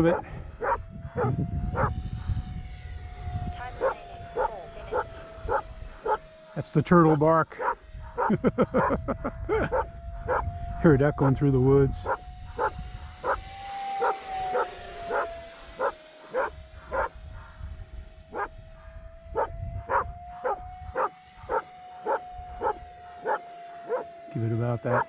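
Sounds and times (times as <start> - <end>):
electric jet fan whine: 0.0 - 25.0
dog barking: 0.1 - 1.9, 3.8 - 6.2, 7.6 - 9.0, 9.7 - 10.4, 12.6 - 13.4, 14.0 - 17.1, 19.4 - 24.0.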